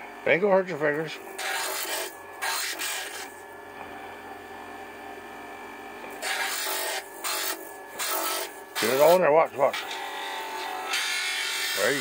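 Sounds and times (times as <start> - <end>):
motor hum: 0.0 - 12.0.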